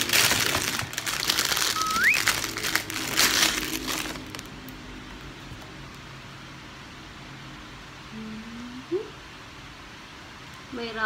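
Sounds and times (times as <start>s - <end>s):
plastic bag crinkling: 0.0s - 4.8s
brief rising tone: 1.7s - 2.4s.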